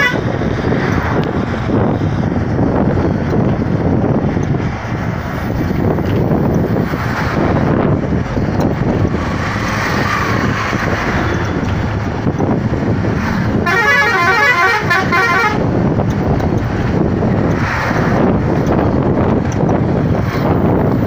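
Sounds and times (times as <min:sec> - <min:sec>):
warbling vehicle horn: 0:00.0 - 0:00.3, 0:13.6 - 0:15.7
road and wind noise: 0:00.0 - 0:21.0.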